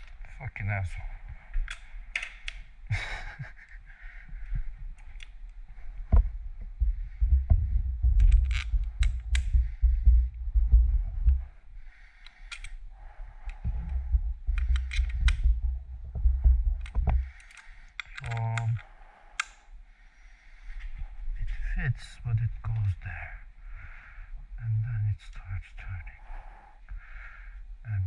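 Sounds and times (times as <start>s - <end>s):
sharp clicks and taps of tools: 1.3s - 2.7s, 4.5s - 5.4s, 8.1s - 9.6s, 12.2s - 12.8s, 13.4s - 15.6s, 16.8s - 19.6s
low rumble: 4.3s - 12.0s, 12.6s - 17.4s.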